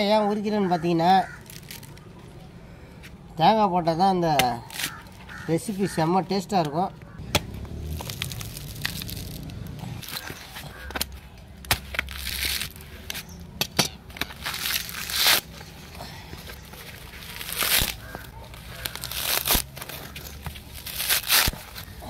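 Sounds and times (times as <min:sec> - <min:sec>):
coconut husk fibres ripping: 0:01.2 - 0:02.2, 0:04.3 - 0:06.0, 0:06.6 - 0:13.3, 0:14.1 - 0:22.0.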